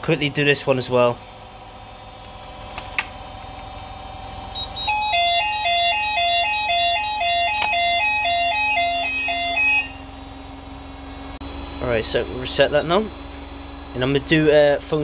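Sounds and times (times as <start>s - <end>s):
two-tone fire alarm: 4.5s - 10.3s
call point click: 7.5s - 7.8s.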